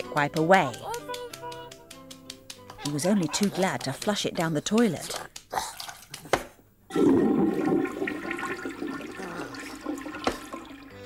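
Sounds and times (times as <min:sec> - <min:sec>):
toilet flush water rushing: 0:06.9 - 0:11.0.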